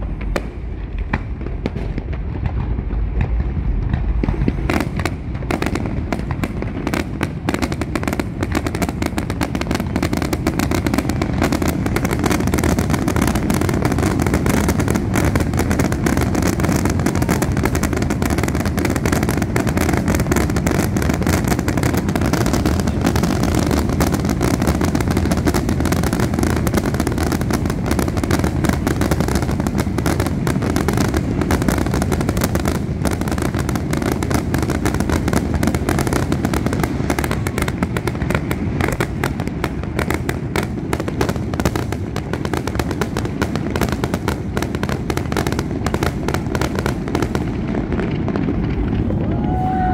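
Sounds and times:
low rumble: 0:00.0 - 0:06.2
fireworks bursting: 0:00.0 - 0:49.9.

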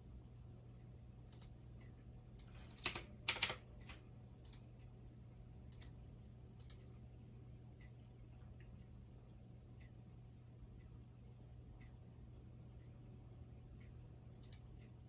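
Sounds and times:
faint electrical hum: 0:00.0 - 0:15.0
mouse clicking: 0:01.3 - 0:01.6, 0:06.6 - 0:06.9, 0:13.8 - 0:14.7
keyboard keystrokes: 0:02.7 - 0:04.6.

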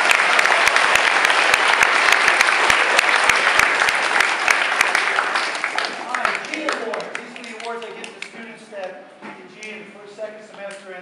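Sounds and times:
audience applause: 0:00.0 - 0:08.3.

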